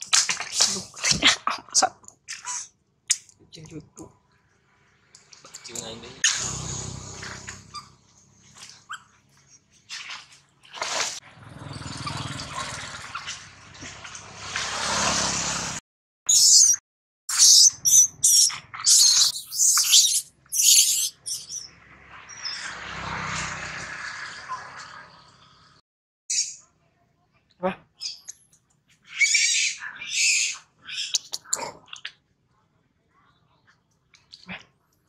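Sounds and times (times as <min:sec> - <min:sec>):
motorbikes passing: 0:05.6 - 0:08.4, 0:11.1 - 0:15.8, 0:21.5 - 0:25.8
monkey squealing: 0:16.3 - 0:21.7, 0:29.1 - 0:31.6.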